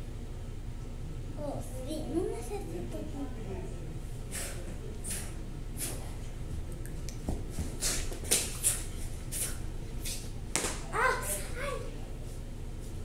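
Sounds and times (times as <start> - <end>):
toy swords swishing: 7.8 - 11.5.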